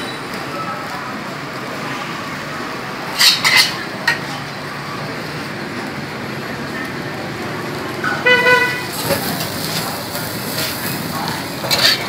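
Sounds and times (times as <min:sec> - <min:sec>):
utensil clinking on cookware: 0:09.0 - 0:12.0.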